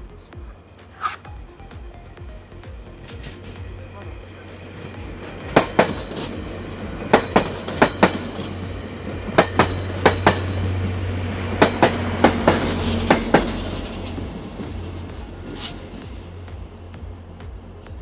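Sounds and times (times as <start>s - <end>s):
diesel locomotive drone: 0.0s - 18.0s
train wheels clacking over rail joints: 4.8s - 16.6s.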